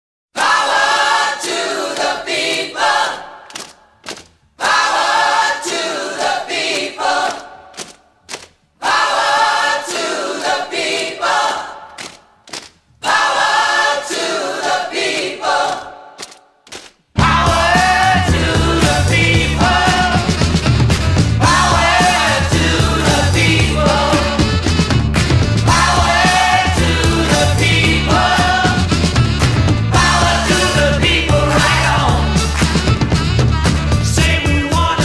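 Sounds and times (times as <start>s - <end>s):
choral singing: 0.4s - 3.6s, 4.6s - 8.0s, 8.8s - 12.3s, 13.0s - 16.2s, 17.2s - 24.8s, 25.5s - 32.6s, 34.0s - 35.0s.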